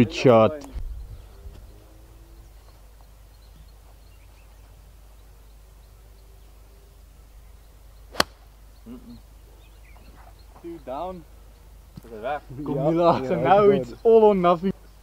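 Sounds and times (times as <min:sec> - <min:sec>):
golf club striking ball: 0:08.1 - 0:08.5.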